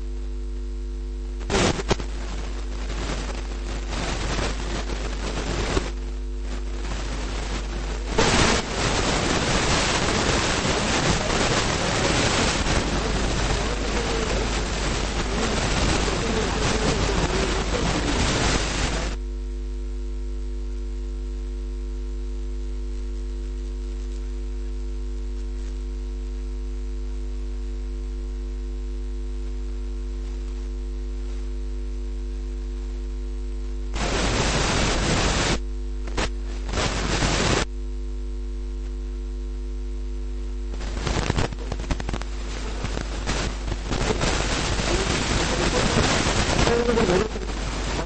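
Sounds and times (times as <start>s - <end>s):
electrical mains hum: 0.0s - 48.0s
loud rushing hiss: 1.5s - 19.2s, 34.0s - 35.6s, 36.2s - 37.6s, 40.8s - 48.0s.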